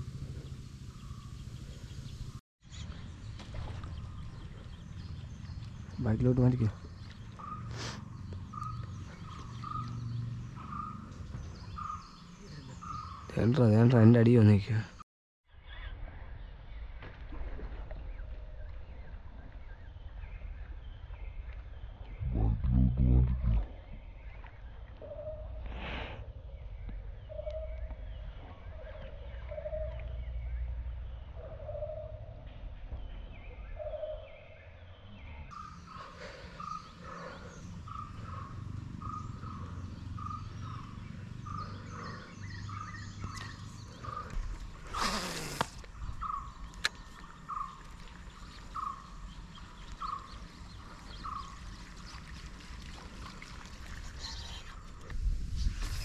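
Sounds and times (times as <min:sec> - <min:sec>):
fishing reel whirring: 0:44.8 - 0:45.8.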